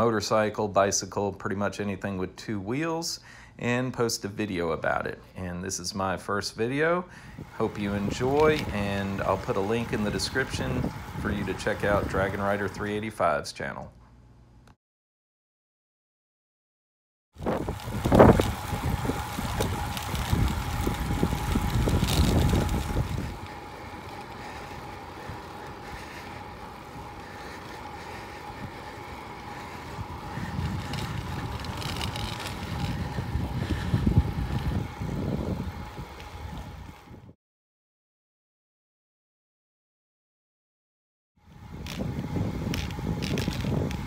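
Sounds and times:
bicycle tyre noise on asphalt: 6.6 - 13.3, 17.4 - 37.4, 41.4 - 44.0
wind buffeting microphone: 7.2 - 13.0, 17.4 - 37.3, 41.5 - 44.0
faint steady whine: 17.5 - 37.0.

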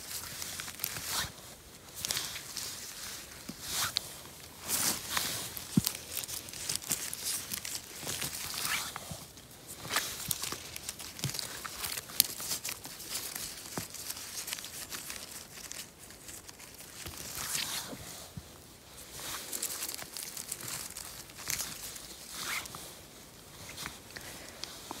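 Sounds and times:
leaves and moss rustling: 0.0 - 25.0
twigs snapping: 2.0 - 17.7, 19.4 - 22.7.

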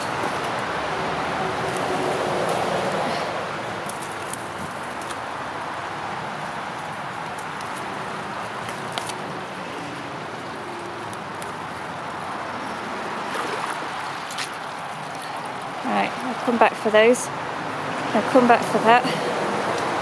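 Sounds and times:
brook rushing: 11.5 - 15.8.

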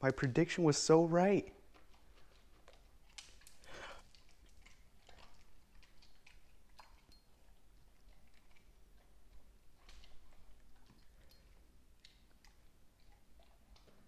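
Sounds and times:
dog crunching dry kibble: 0.0 - 14.0.

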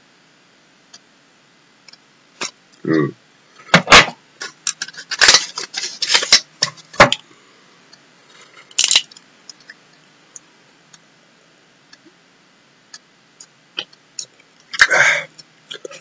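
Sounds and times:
small objects clicking and rustling: 4.4 - 7.2, 8.7 - 9.8.

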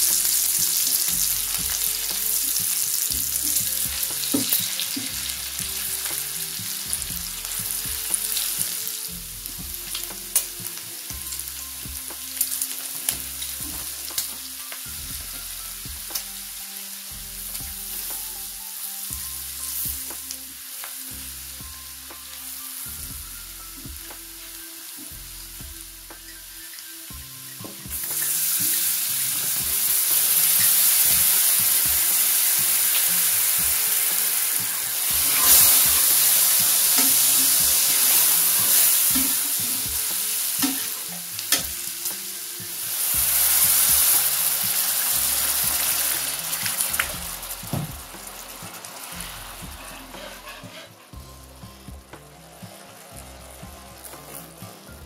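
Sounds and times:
bacon and onion frying: 0.0 - 55.0
loud sizzling: 0.0 - 55.0
spatula stirring in pan: 27.9 - 51.1.

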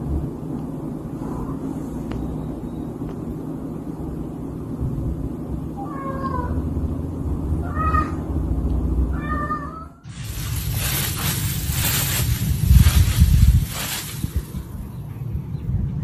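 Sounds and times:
cat meowing: 5.8 - 6.6, 7.6 - 8.3, 9.1 - 10.1
steady rushing noise: 10.1 - 15.4.

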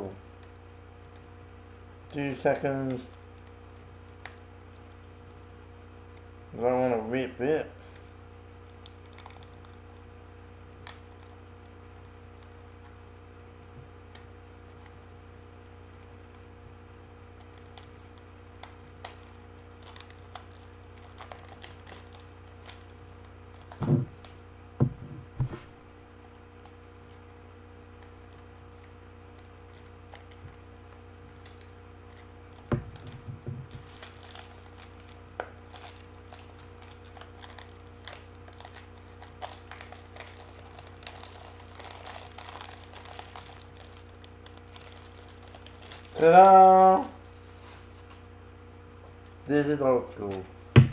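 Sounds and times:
steady low hum: 0.0 - 50.9
wrapping paper crinkling: 8.0 - 9.9, 17.4 - 24.4, 28.0 - 48.3
handling knocks: 23.8 - 24.2, 24.8 - 25.8.

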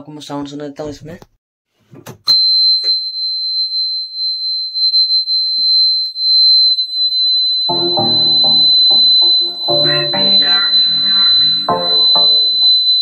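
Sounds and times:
high-pitched warning buzzer: 7.7 - 13.0.

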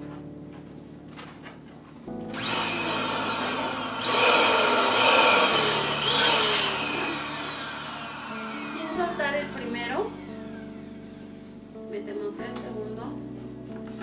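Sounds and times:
electric balloon inflator blowing air: 2.3 - 10.7.

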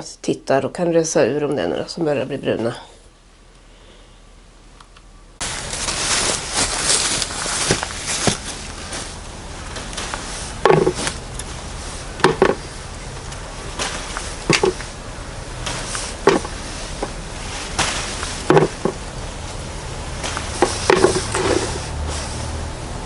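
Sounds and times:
leaves rustling: 5.4 - 23.0
bean pods snapping off: 12.2 - 15.0, 20.1 - 21.4.

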